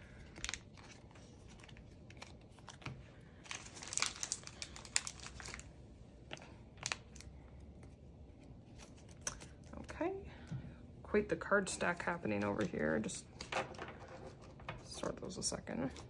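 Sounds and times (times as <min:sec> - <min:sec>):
plastic sleeves crinkling: 0:00.0 - 0:10.0.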